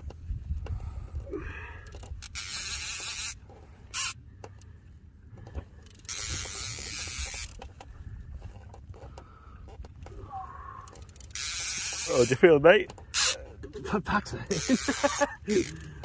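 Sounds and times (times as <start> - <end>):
wind rumble on microphone: 0.0 - 2.3
fishing reel drag buzzing: 1.8 - 4.6, 5.8 - 9.0, 10.8 - 13.7, 14.4 - 16.0.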